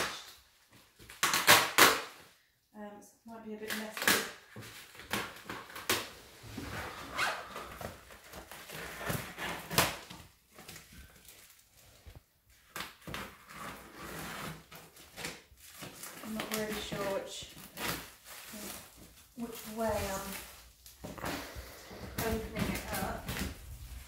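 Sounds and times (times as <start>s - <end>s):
plastic crinkling and rustling: 3.6s - 24.0s
scissors cutting plastic: 12.6s - 18.8s.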